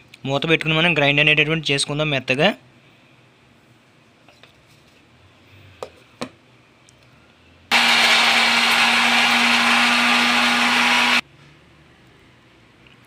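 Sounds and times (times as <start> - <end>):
mixer grinder running: 7.7 - 11.2.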